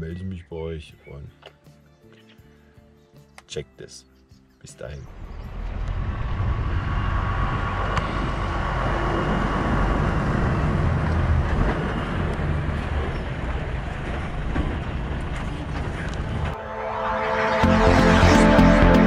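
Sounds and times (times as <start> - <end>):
diesel truck engine running: 5.1 - 16.6.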